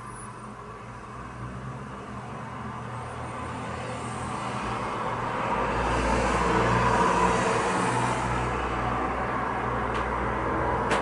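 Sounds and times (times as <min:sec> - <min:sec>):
road traffic noise: 0:00.0 - 0:11.0
vehicle passing: 0:03.3 - 0:10.9.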